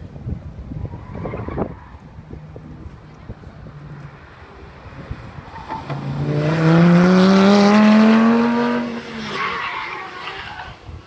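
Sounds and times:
sports car engine accelerating past: 0:03.6 - 0:09.4.

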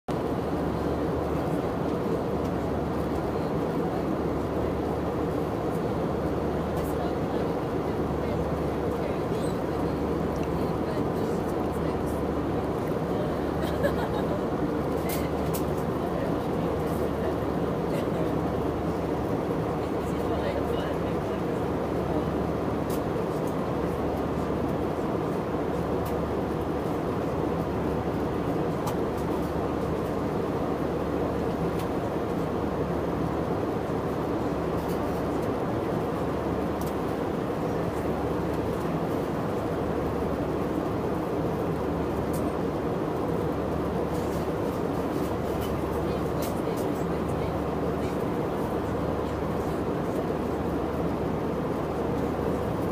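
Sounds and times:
airliner cabin rumble: 0:00.1 - 0:52.9.

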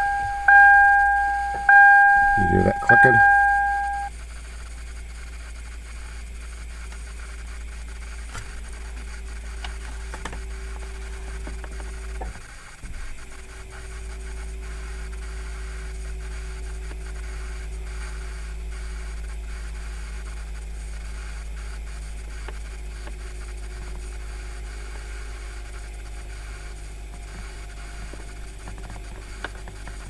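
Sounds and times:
electric actuator humming: 0:00.0 - 0:04.1.

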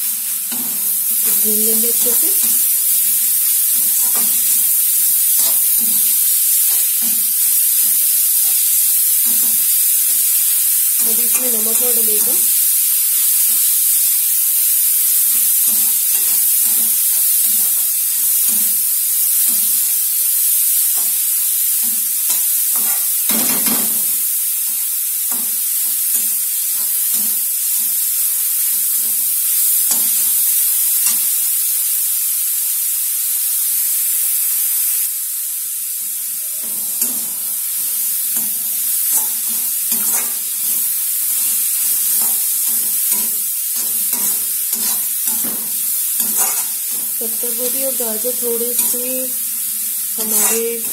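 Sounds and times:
vegetables sizzling in oil: 0:00.0 - 0:50.9
spatula scraping a pan: 0:00.3 - 0:12.6, 0:15.1 - 0:30.4, 0:36.6 - 0:50.9.

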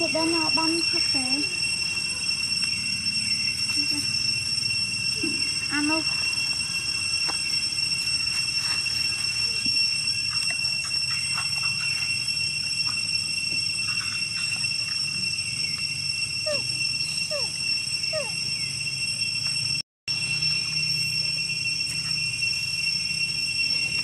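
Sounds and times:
high-pitched drone: 0:00.0 - 0:24.0
baby monkeys squeaking: 0:16.5 - 0:17.5, 0:18.1 - 0:18.4.

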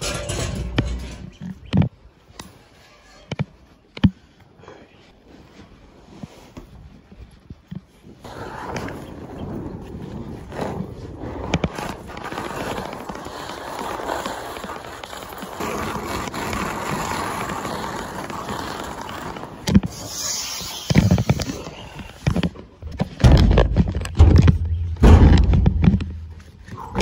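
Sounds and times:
heavy low bumping: 0:23.2 - 0:26.7.

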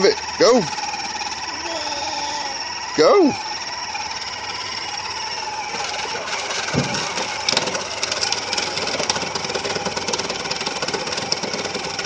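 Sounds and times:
toy electric motors whirring: 0:00.0 - 0:12.0
rapid clatter: 0:02.7 - 0:12.0.

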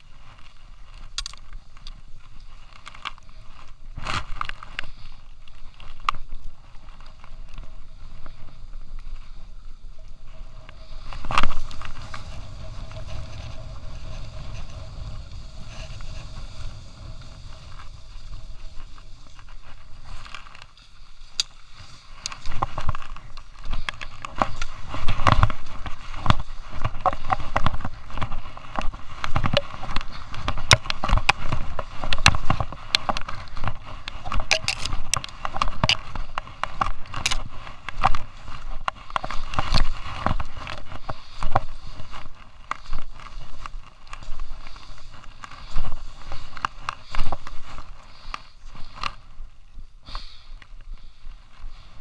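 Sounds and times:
skis scraping over hard snow: 0:00.0 - 0:52.0
sharp clicks and knocks: 0:28.8 - 0:38.2.

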